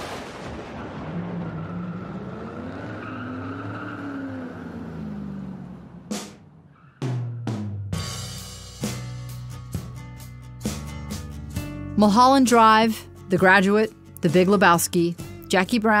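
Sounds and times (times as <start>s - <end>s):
drum-led music: 6.1s - 6.4s, 7.0s - 12.2s.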